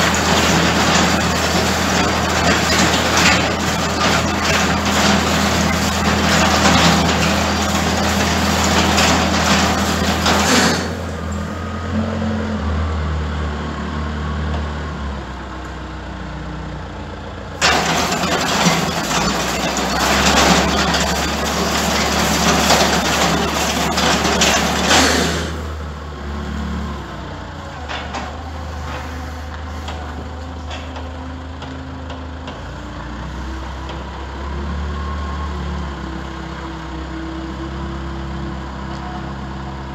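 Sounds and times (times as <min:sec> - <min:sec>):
bale processor shredding straw: 0:00.0 - 0:11.3, 0:17.6 - 0:25.8
engine running steadily: 0:00.0 - 0:11.7, 0:15.1 - 0:34.6.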